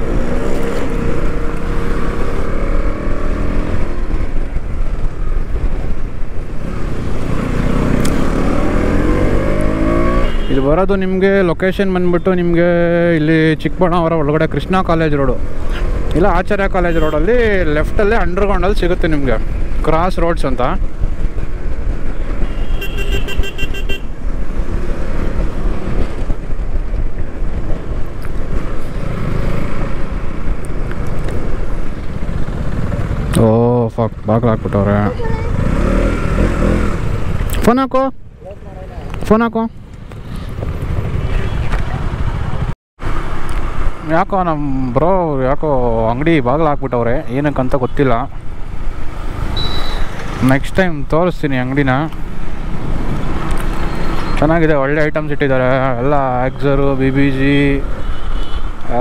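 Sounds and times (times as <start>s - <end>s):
motorcycle engine and wind rumble: 0.0s - 59.0s
vehicle horn beeping: 10.1s - 10.7s, 16.9s - 17.3s, 22.4s - 24.1s, 49.6s - 50.2s.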